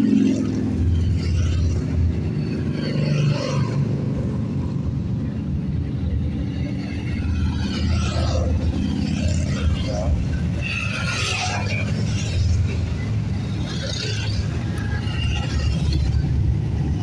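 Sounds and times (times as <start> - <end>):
motorcycle engines rumbling: 0.0 - 17.0.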